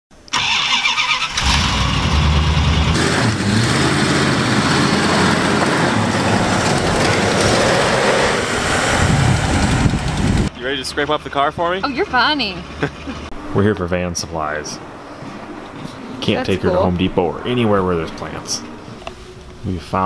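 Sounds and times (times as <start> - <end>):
van engine running: 1.4 - 13.3.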